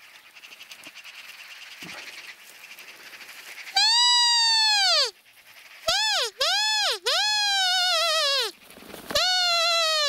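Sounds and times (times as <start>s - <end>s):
magpies chattering: 0.0s - 10.0s
high squealing bird call: 3.7s - 5.2s, 5.8s - 10.0s.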